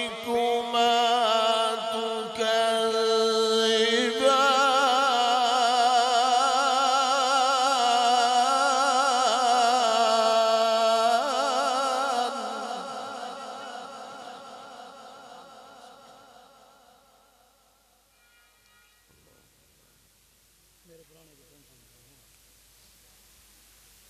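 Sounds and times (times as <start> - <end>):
man chanting into a microphone: 0.0 - 17.2.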